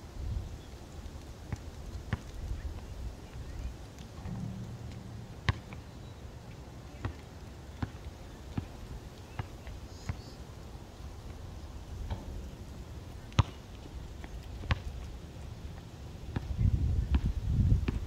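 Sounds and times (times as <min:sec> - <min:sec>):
basketball bouncing on concrete: 0:04.2 - 0:06.2, 0:07.8 - 0:08.7, 0:13.3 - 0:13.8, 0:14.6 - 0:14.9.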